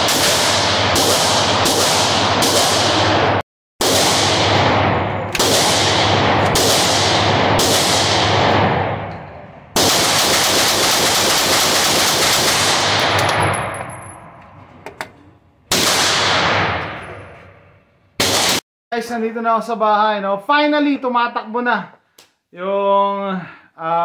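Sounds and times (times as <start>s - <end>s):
pistol shots echoing indoors: 0.0s - 13.8s, 15.7s - 18.6s.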